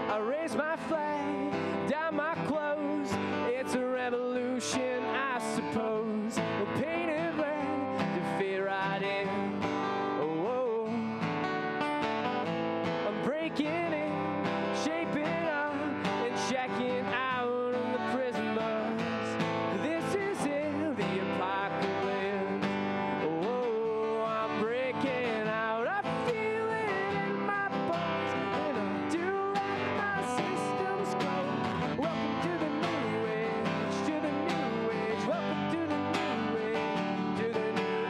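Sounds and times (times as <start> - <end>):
man singing: 0.0 - 11.6, 13.0 - 38.0
acoustic guitar strumming: 0.0 - 38.0.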